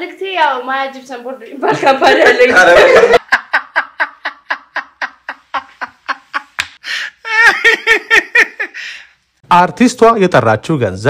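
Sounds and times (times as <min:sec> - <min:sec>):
man laughing: 0:02.4 - 0:09.0
sharp breath in: 0:08.8 - 0:09.2.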